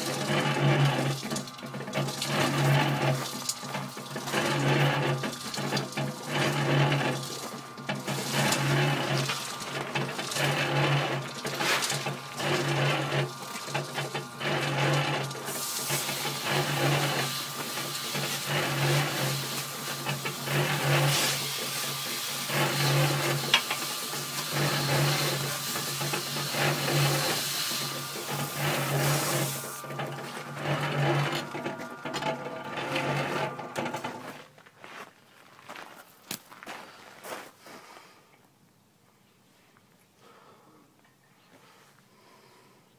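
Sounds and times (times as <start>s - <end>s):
cement mixer motor hum: 0.0s - 34.6s.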